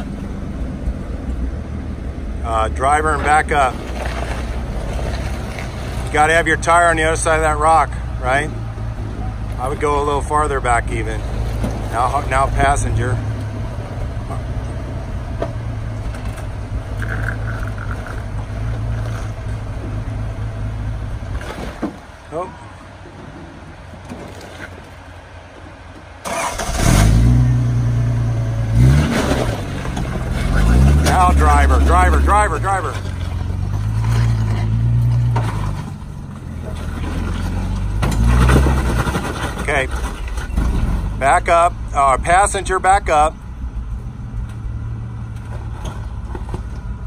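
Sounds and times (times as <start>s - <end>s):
jeep engine rumbling at low revs: 0.0s - 47.0s
jeep engine revving under load: 26.2s - 42.1s.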